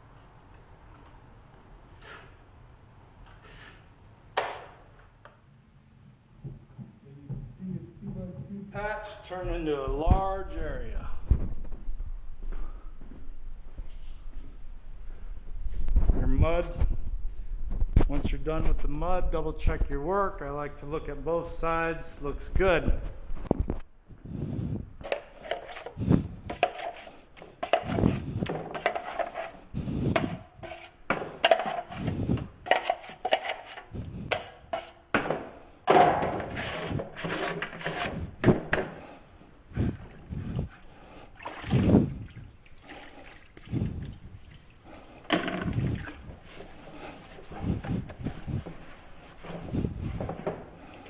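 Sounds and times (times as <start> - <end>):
taping knife scraping mud pan: 3.4 - 3.9, 25.0 - 35.1, 36.3 - 38.4
sponge sloshing in bucket of water: 40.6 - 47.6.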